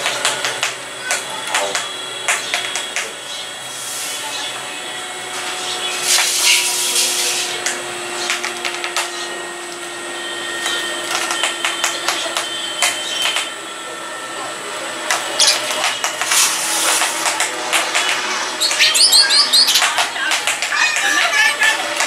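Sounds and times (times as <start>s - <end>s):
sparrows chirping: 1.7s - 9.4s, 10.6s - 13.5s, 15.3s - 16.9s, 17.8s - 21.8s.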